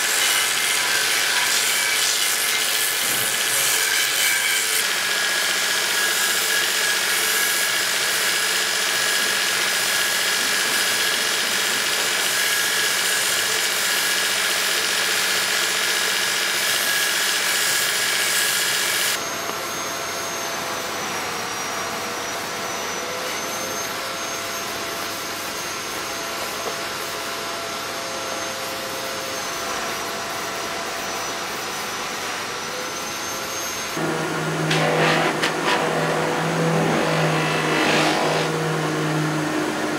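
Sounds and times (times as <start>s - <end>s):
belt sander grinding wood: 0.0s - 19.2s, 31.2s - 39.9s
sander motor hum: 28.8s - 39.9s.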